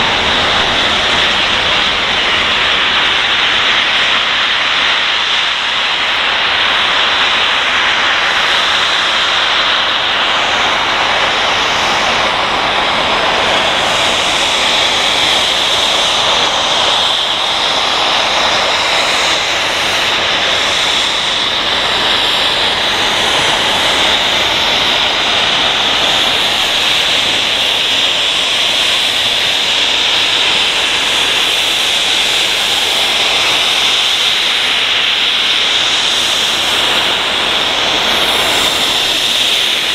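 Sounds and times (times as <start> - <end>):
loud steam hiss: 0.0 - 39.9.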